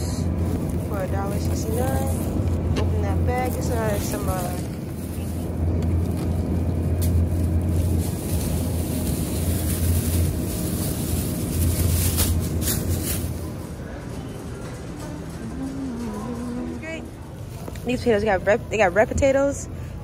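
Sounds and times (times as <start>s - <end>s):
low steady rumble: 0.0s - 20.0s
plastic bag rustling and crinkling: 0.1s - 13.7s.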